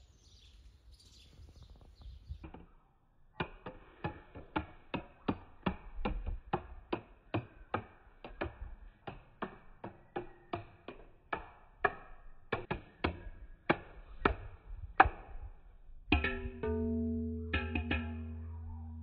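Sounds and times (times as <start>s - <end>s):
ball bouncing down wooden steps: 3.4s - 15.3s.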